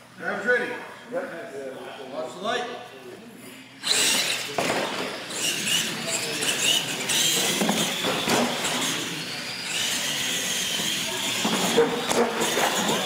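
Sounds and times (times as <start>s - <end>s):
toy truck motors whining: 3.8s - 13.0s.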